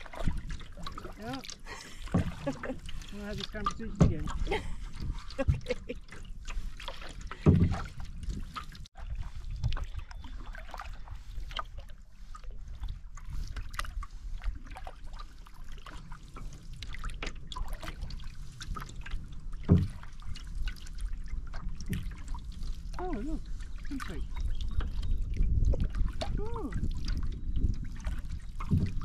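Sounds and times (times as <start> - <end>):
paddle strokes through water: 0.0 - 29.0
water dripping off paddle: 0.0 - 29.0
low thump: 7.3 - 8.0, 19.6 - 20.1, 28.6 - 29.0.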